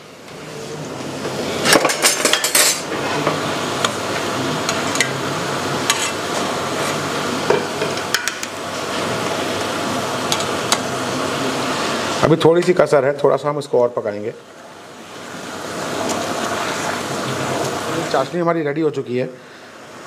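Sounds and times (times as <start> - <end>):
syrup boiling and bubbling: 14.4 - 18.4.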